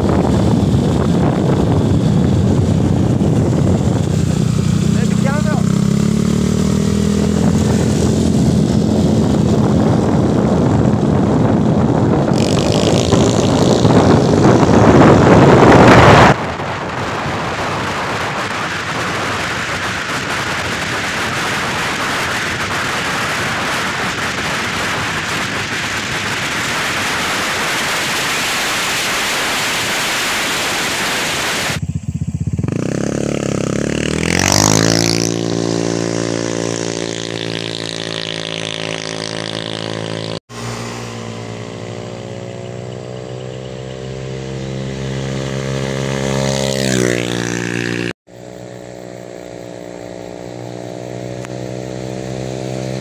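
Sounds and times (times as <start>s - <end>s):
engine revving: 0.0s - 53.0s
scooter engine pulling hard: 0.0s - 53.0s
wind and road rush: 0.0s - 53.0s.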